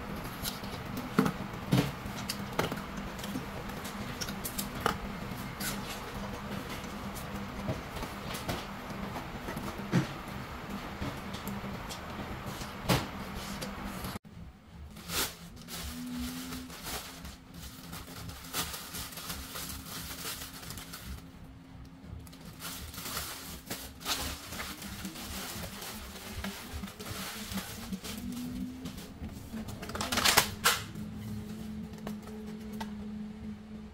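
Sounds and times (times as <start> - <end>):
plastic bag crinkling: 14.9 - 21.3, 22.2 - 31.0.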